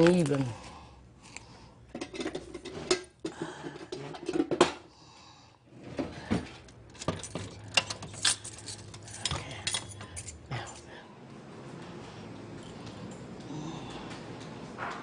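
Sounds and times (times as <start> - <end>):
keys rattling in a lock: 6.9 - 11.0.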